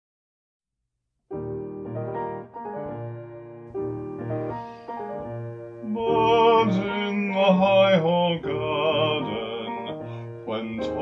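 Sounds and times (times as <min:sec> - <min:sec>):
piano accompaniment: 0:01.3 - 0:11.0
classical voice singing: 0:05.8 - 0:11.0.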